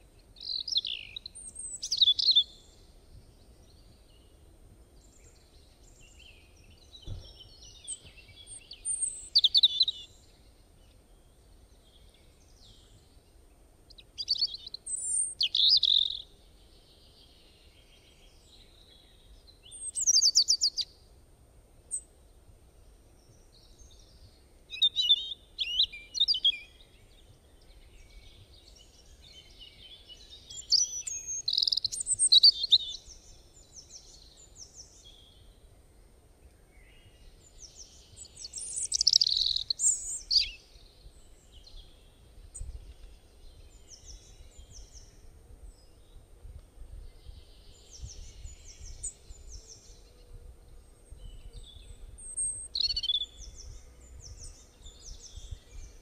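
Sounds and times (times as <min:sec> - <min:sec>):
birds chirping: 0:23.2 - 0:35.6, 0:36.6 - 0:46.3, 0:47.2 - 0:56.0
bird trill: 0:38.3 - 0:40.6, 0:52.2 - 0:53.5.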